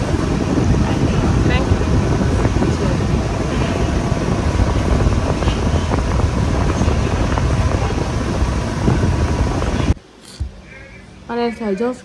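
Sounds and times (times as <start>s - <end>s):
moving vehicle rumble: 0.0s - 11.3s.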